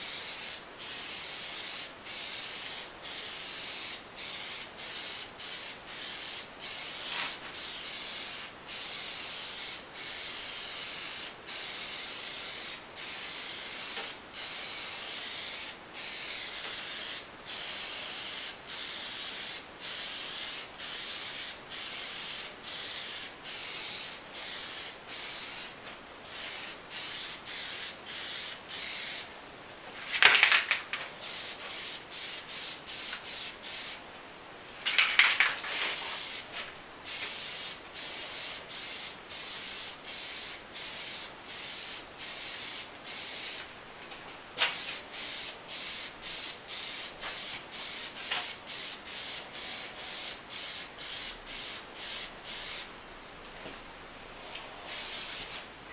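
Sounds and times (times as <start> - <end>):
aerosol can spraying hiss: 0.0 - 29.3, 30.0 - 34.0, 34.8 - 43.7, 44.6 - 52.9, 54.6 - 55.7
spray can rattling: 30.0 - 33.9, 34.8 - 43.6, 44.6 - 52.8.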